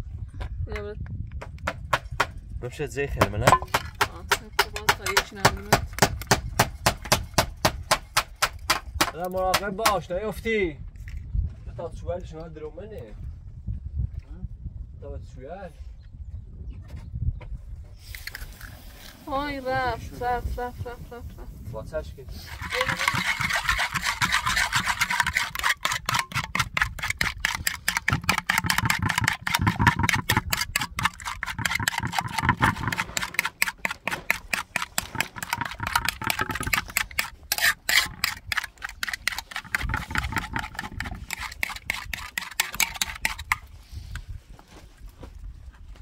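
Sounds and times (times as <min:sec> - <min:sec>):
spoon beating eggs in metal pan: 0:22.3 - 0:43.6.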